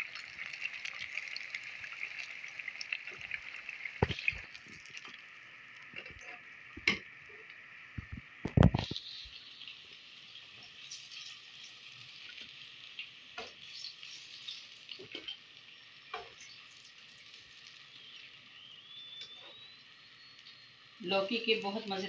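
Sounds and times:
oil crackles: 0.0 - 9.8
hot oil sizzling: 0.0 - 22.0.

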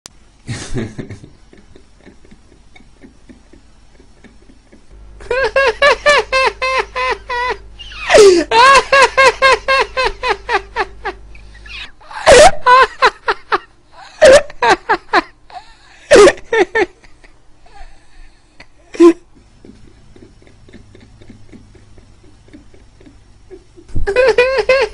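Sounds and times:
person laughing hard: 0.5 - 24.9.

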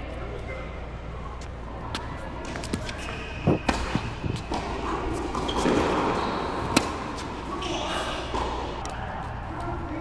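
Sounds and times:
tennis ball bouncing on court: 2.4 - 7.3.

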